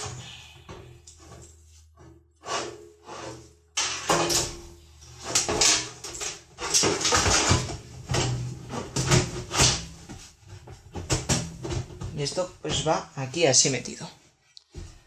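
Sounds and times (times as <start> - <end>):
cables rustling and scraping: 0.0 - 11.0.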